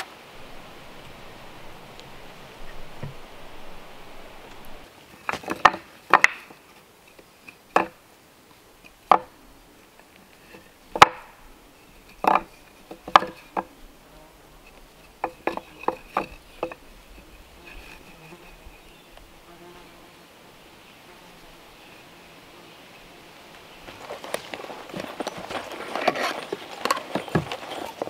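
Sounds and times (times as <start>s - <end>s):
fly buzzing faintly: 0.0s - 4.9s, 11.7s - 24.5s
wooden blocks clacking: 5.2s - 6.6s, 9.1s - 9.3s, 10.9s - 11.3s, 12.1s - 13.7s, 15.0s - 16.8s.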